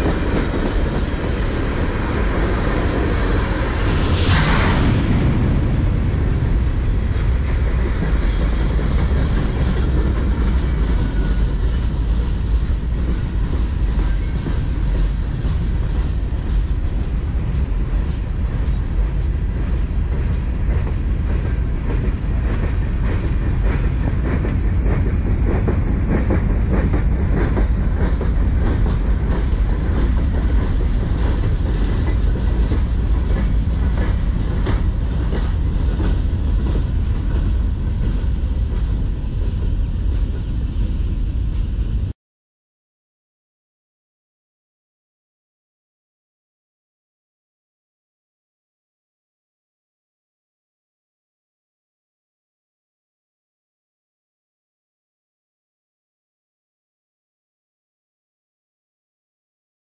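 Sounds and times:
train wheel clacks: 0.0s - 3.5s, 7.1s - 41.9s
freight train rumbling past: 0.0s - 42.2s.

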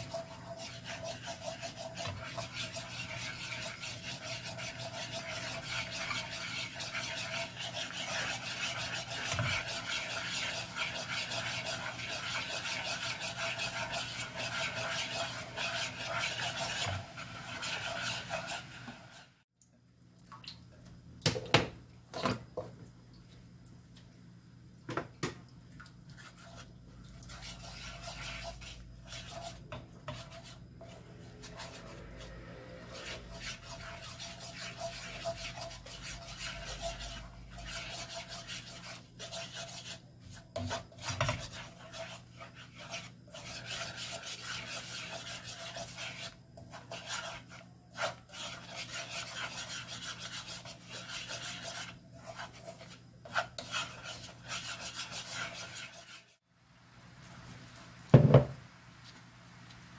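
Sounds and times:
wooden spoon scraping a frying pan: 0.0s - 19.4s, 26.1s - 56.4s.

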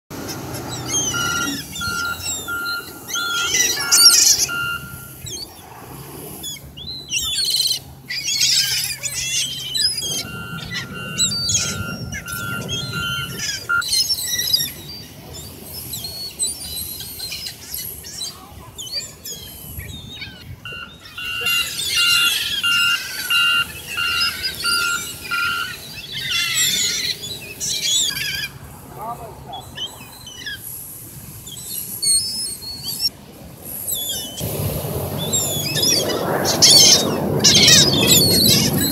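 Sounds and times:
gulls calling: 0.1s - 38.9s
electronic beeping: 1.0s - 5.2s, 10.0s - 13.8s.

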